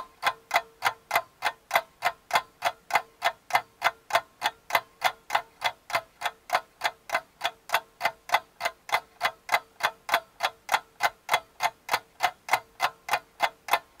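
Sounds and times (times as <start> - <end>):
rapid even ticking: 0.0 - 14.0.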